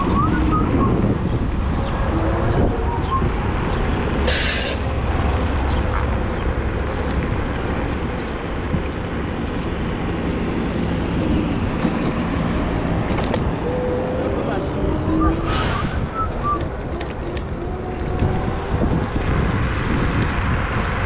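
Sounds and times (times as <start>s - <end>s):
street traffic rumble: 0.0s - 21.0s
wind noise: 0.0s - 21.0s
bus air brakes hiss: 4.3s - 4.9s.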